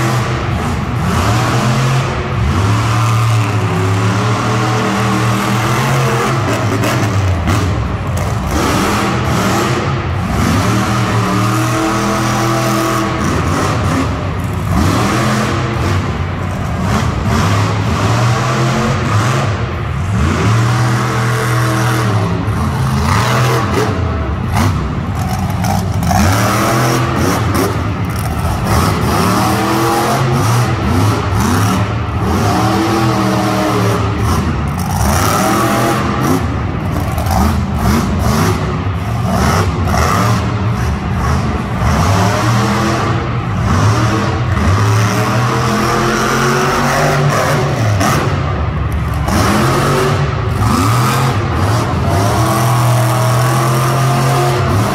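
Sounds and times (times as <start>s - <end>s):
truck engine revving: 0.0s - 54.9s.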